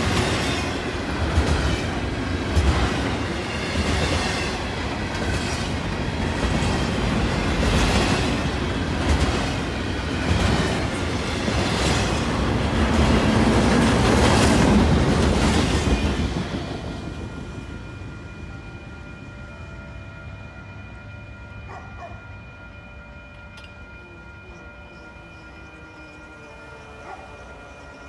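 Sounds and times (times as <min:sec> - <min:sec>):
train wheels rumbling on rail: 0:00.0 - 0:19.7.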